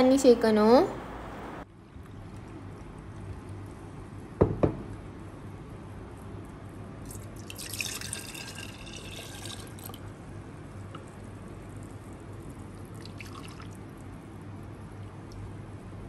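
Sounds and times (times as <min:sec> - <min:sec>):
syrup pouring and splashing: 0:07.0 - 0:10.1, 0:12.6 - 0:14.1.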